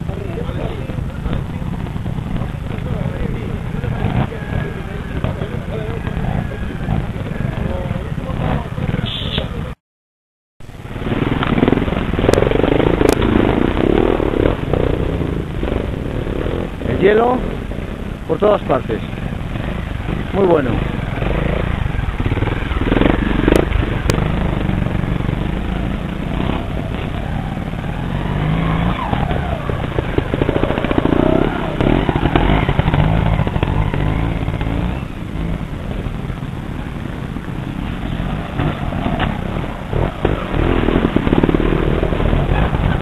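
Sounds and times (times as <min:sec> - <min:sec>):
motorcycle engines revving: 0:00.0 - 0:09.8, 0:10.6 - 0:43.0.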